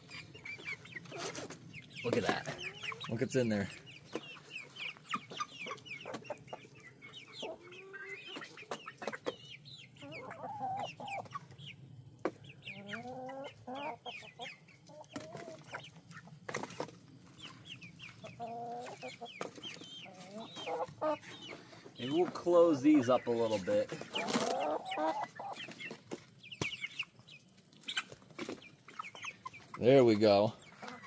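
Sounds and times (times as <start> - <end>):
chickens clucking and calling: 0.0 - 31.0.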